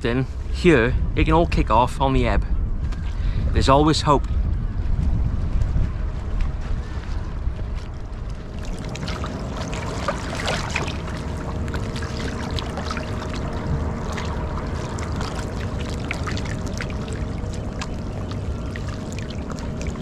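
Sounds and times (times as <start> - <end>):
wind rumble on microphone: 0.0 - 20.0
water lapping against stony shore: 8.1 - 20.0.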